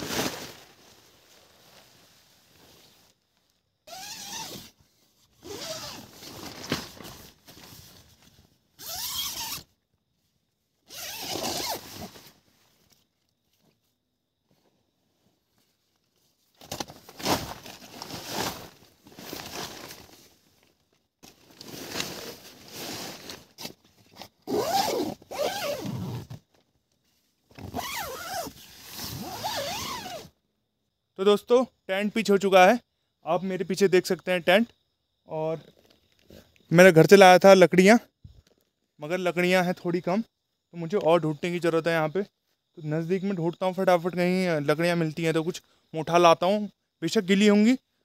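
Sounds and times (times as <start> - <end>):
tent fabric rustling: 0.0 - 30.4
zippers being pulled: 3.9 - 4.8, 5.4 - 6.3, 8.8 - 9.7, 10.9 - 12.1, 24.2 - 26.4, 27.6 - 30.3.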